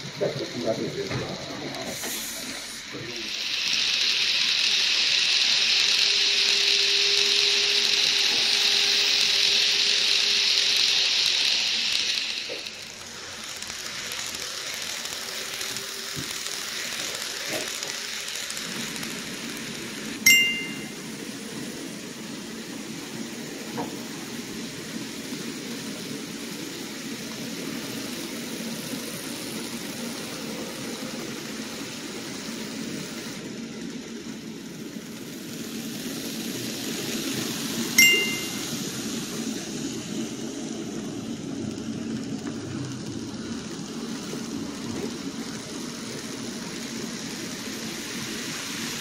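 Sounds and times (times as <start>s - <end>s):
model train wheels rumbling: 0.0s - 49.0s
steady hiss: 0.0s - 49.0s
bright chime: 20.3s - 21.0s, 38.0s - 38.8s.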